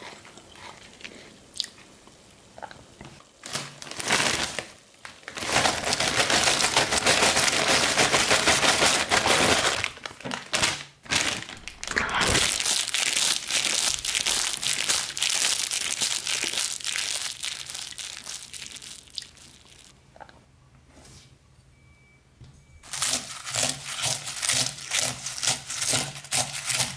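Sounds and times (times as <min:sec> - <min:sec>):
foil bag crinkling: 0:03.4 - 0:20.0, 0:22.8 - 0:26.9
chips poured into metal pot: 0:11.4 - 0:19.9.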